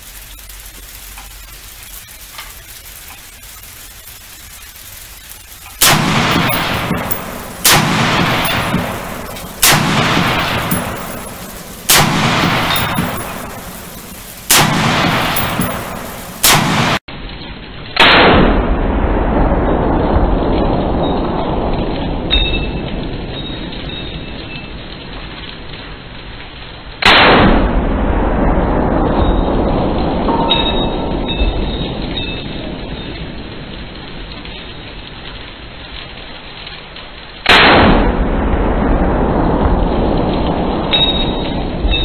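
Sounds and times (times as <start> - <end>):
rifle shots echoing: 5.2 - 17.0, 37.5 - 38.3.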